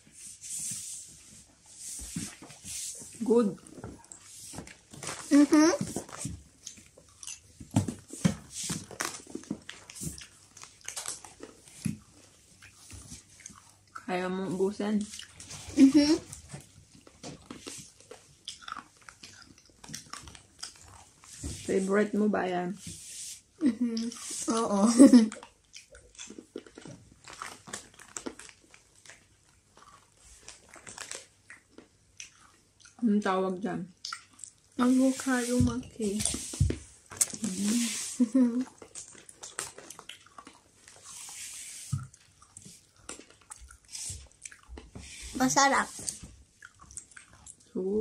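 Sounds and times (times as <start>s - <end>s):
child chewing food: 0.0s - 48.0s
wet mouth smacks and clicks: 25.3s - 26.8s, 34.0s - 34.6s.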